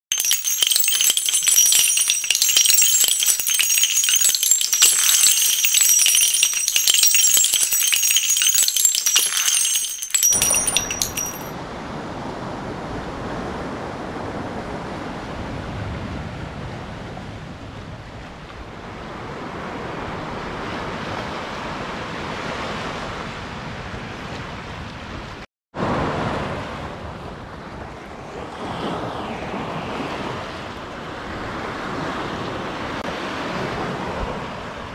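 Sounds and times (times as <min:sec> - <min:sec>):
bright jingling rattle: 0:00.1 - 0:11.5
waves washing on a beach: 0:11.6 - 0:34.9.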